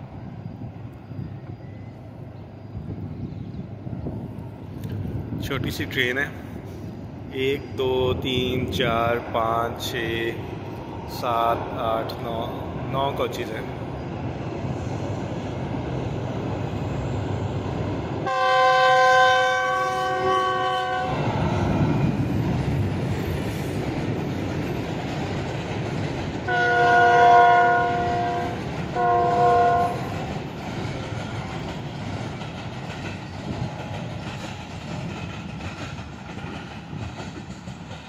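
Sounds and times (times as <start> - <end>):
train running noise: 0.0 - 38.0
train horn blasts: 18.2 - 21.3, 26.5 - 30.1.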